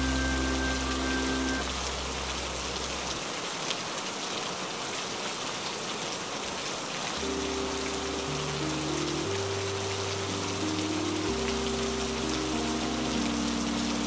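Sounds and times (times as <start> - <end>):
soft music with held notes: 0.0 - 2.6, 7.2 - 14.0
steady rain falling: 0.0 - 14.0.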